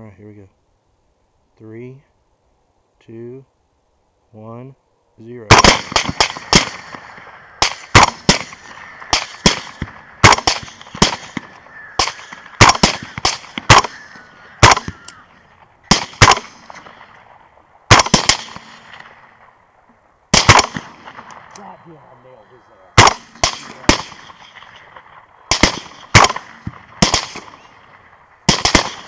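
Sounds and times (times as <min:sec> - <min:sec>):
suppressed rifle shots: 0:05.5 - 0:19.5, 0:20.3 - 0:21.7, 0:23.0 - 0:29.0.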